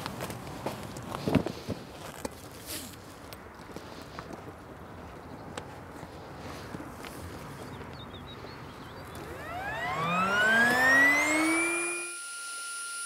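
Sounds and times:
motor whine rising in pitch: 0:09.1 - 0:13.0
thin high tone: 0:09.3 - 0:13.0.

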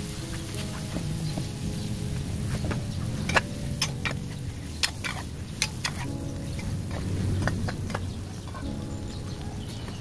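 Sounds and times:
metal spatula stirring eggs in wok: 0:03.2 - 0:08.7.

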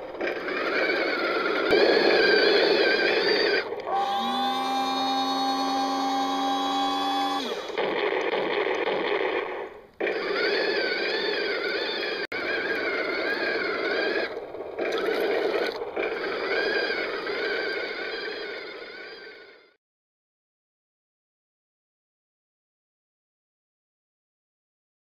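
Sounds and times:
toy tank motors whining: 0:00.0 - 0:08.8, 0:09.8 - 0:19.8.

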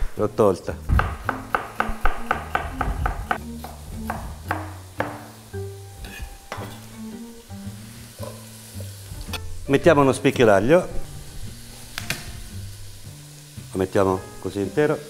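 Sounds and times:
background music with bass line: 0:00.6 - 0:14.4
knife chopping celery on board: 0:00.9 - 0:05.3.

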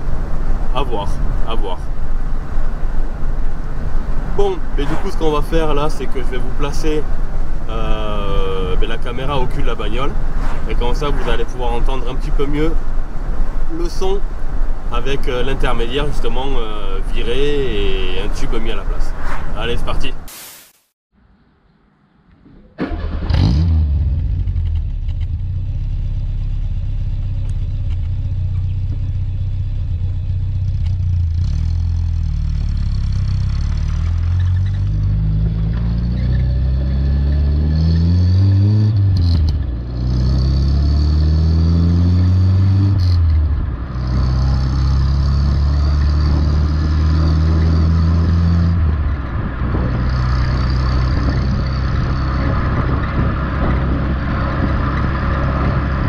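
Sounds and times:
car exhaust driving off: 0:22.8 - 0:56.0.

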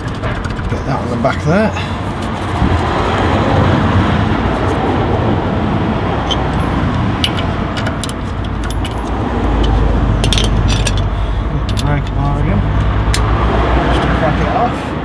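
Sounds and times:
rushing background noise: 0:00.0 - 0:15.0
metal wrench clicks: 0:06.3 - 0:12.2.

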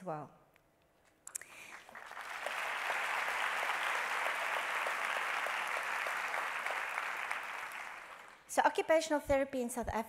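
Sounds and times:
audience applauding: 0:01.6 - 0:08.5.

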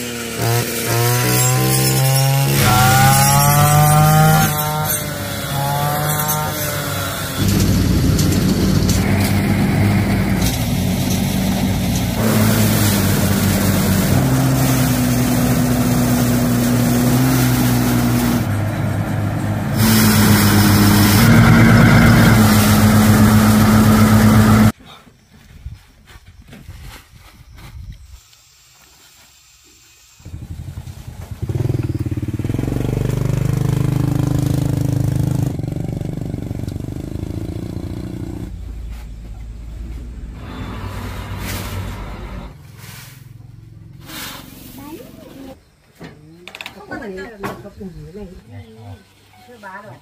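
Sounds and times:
rice thresher running: 0:00.0 - 0:24.7, 0:39.8 - 0:45.5
brush cutter engine cutting: 0:00.0 - 0:24.8.

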